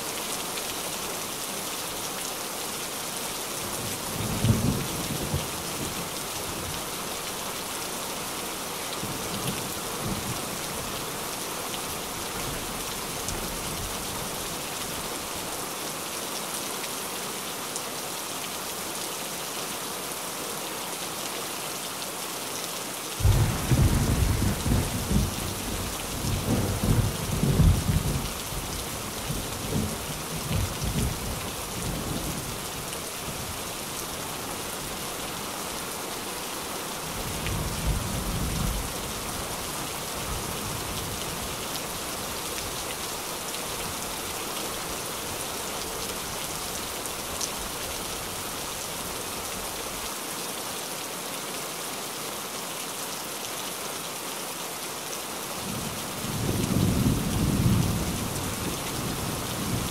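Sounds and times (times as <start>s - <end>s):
rain on a tin roof: 0.0s - 59.9s
thunder rumbling: 23.2s - 28.2s.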